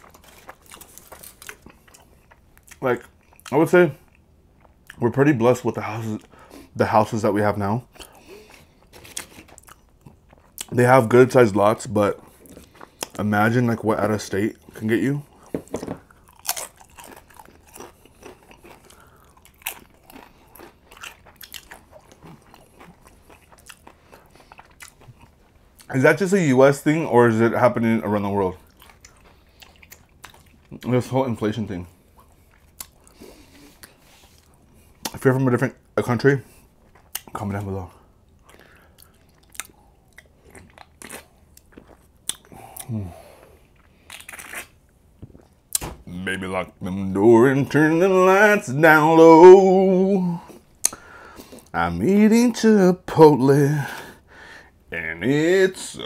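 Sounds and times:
person chewing with mouth clicks: 7.9s - 10.7s, 15.3s - 25.9s, 28.6s - 30.9s, 32.1s - 35.2s, 36.8s - 37.4s, 38.3s - 45.9s.

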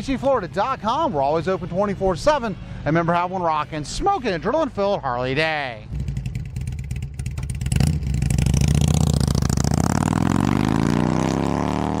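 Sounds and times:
motorcycle engine revving: 5.9s - 12.0s.

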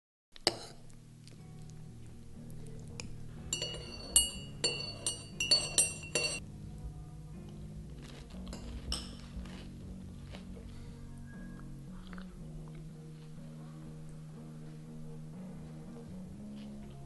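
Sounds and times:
soft background music: 0.4s - 17.0s
spoon clinking in ceramic mug: 3.5s - 6.4s.

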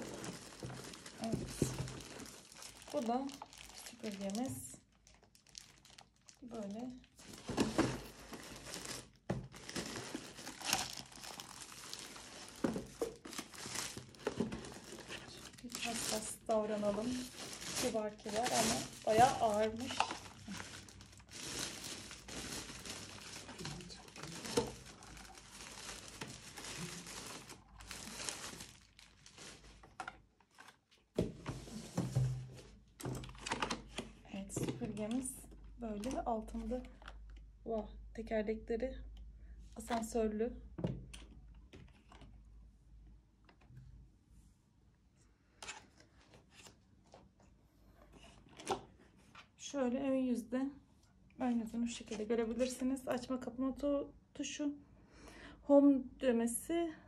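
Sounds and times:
plastic bag crinkling: 0.0s - 30.0s.

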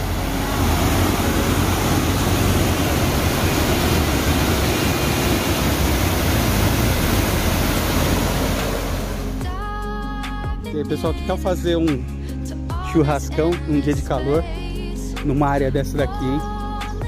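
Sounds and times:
river water cascading over rocks: 0.0s - 9.4s.

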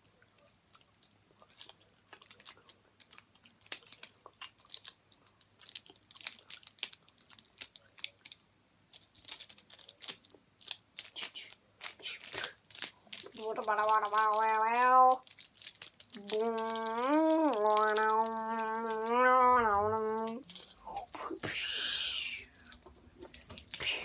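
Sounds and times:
plastic puzzle segments clicking: 11.9s - 21.0s.

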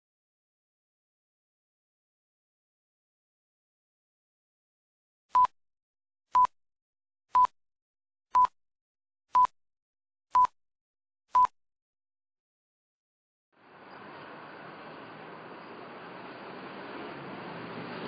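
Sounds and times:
short high countdown beeps: 10.3s - 10.5s.

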